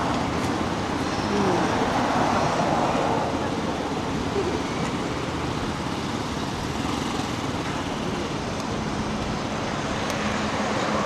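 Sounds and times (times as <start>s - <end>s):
city street traffic: 0.0s - 11.0s.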